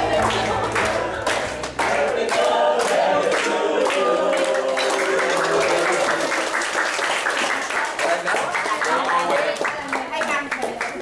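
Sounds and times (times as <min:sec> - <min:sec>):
group singing in chorus: 0:00.0 - 0:06.6.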